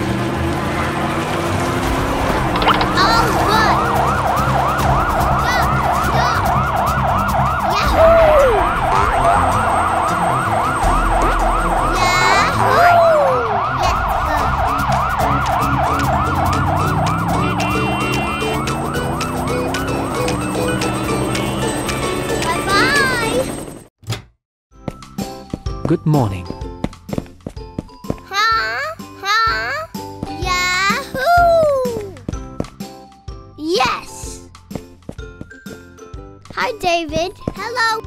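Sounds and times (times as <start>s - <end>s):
falling glide sound effect: 2.5s - 4.7s, 7.4s - 21.4s
cartoon siren wailing: 2.6s - 23.5s.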